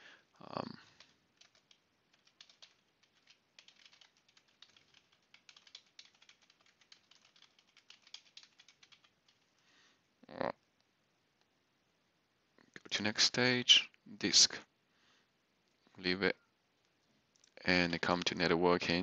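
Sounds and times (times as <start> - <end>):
computer keyboard typing: 0.8 - 9.5.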